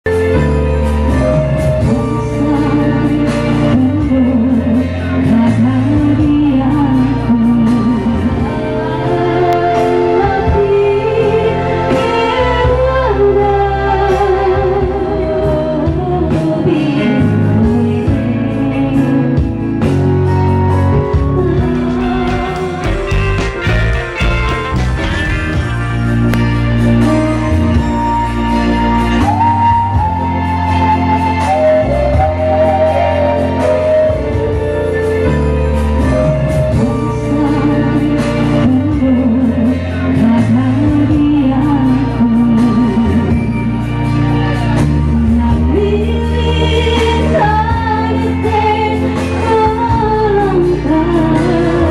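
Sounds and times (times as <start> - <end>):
woman singing into microphone: 0.1 - 23.2, 27.8 - 51.9
guitar and bass music: 0.1 - 51.9
keyboard bass and drum beat: 19.4 - 28.6.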